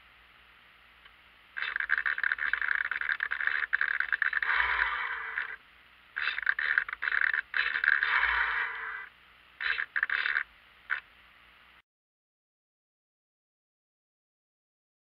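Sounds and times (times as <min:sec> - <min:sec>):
sail winch servo whirring: 0:01.7 - 0:05.6.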